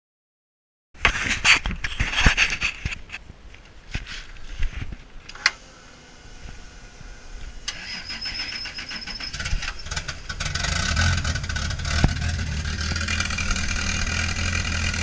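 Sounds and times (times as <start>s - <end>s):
high electric whine: 5.4s - 15.0s.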